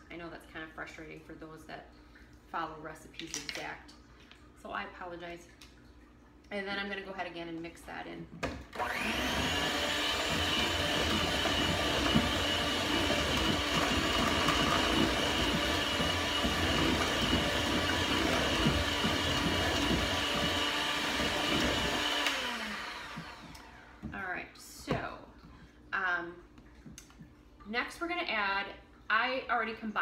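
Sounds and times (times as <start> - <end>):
electric hand mixer whisking: 8.7 - 24.1.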